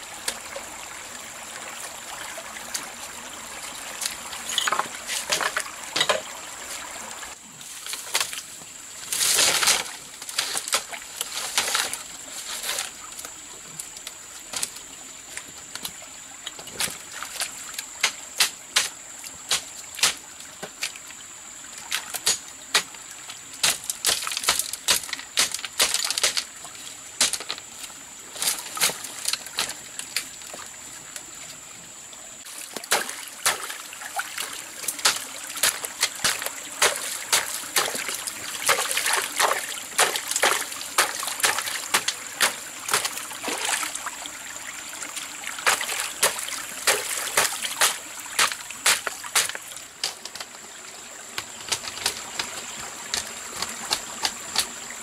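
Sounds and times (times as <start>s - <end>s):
water splashing and trickling: 0.0s - 55.0s.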